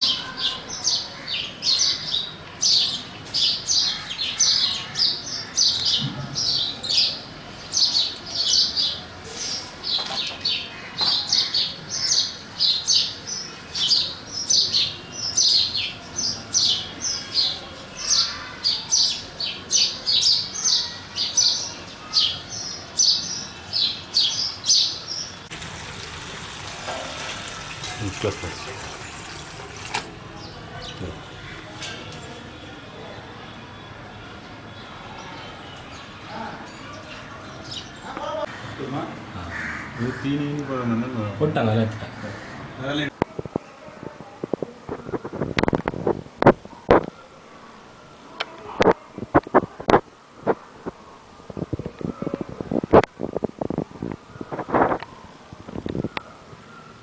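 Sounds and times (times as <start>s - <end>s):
sparrows chirping: 0.0s - 25.5s, 26.4s - 43.1s
tap running water into container: 25.5s - 30.2s.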